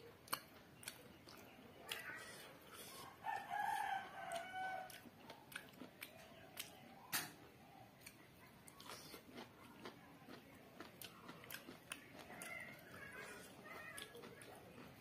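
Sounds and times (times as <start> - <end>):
wet eating clicks and smacks: 0.0 - 15.0
rooster crowing: 3.2 - 5.0.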